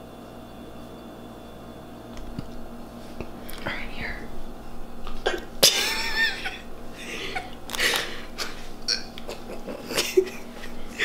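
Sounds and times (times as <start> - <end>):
girl's stifled laughter: 5.6 - 11.0.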